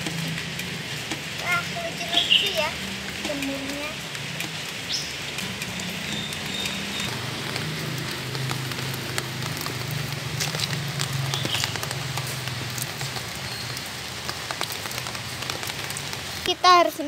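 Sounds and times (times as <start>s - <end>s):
raindrops ticking on umbrella: 0.0s - 17.0s
steady rain falling: 0.0s - 17.0s.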